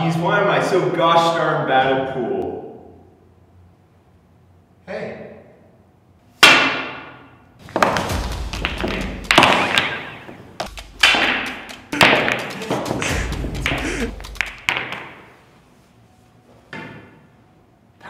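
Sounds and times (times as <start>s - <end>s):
heavy booming hits: 7.7s - 9.9s, 10.7s - 14.7s.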